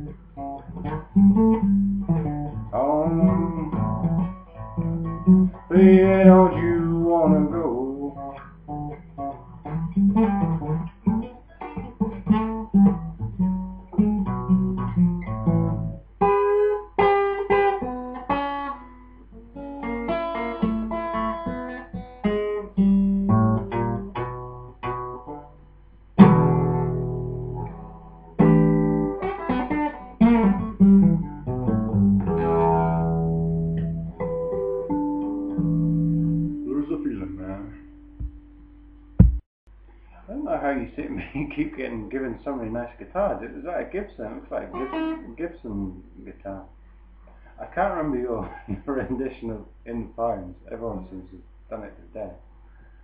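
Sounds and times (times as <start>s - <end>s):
acoustic guitar playing: 0.0s - 39.4s, 44.5s - 45.4s.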